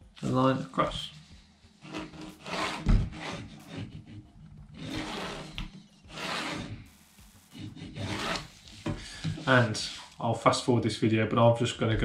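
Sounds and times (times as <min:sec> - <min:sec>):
pencil scraping along ruler: 0:01.7 - 0:09.8.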